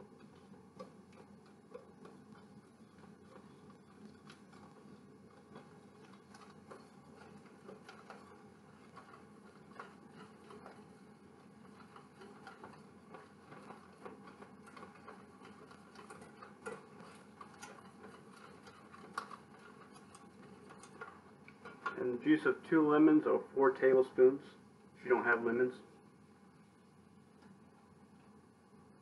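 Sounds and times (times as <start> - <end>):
whisk clicking against saucepan: 0.0 - 22.7.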